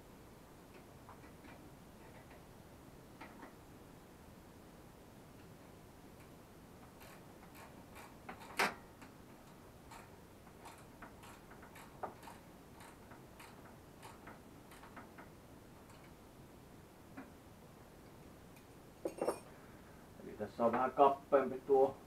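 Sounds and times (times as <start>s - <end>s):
small parts clicking and tapping: 6.2s - 16.2s.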